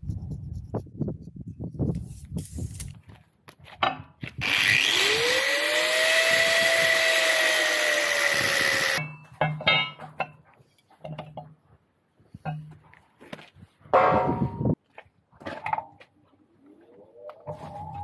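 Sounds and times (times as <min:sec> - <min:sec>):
angle grinder cutting steel: 0:04.4 - 0:09.0.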